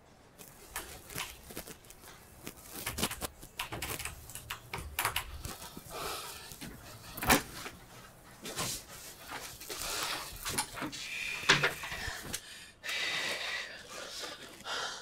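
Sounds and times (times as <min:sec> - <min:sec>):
short rustle: 0:00.4 - 0:04.4.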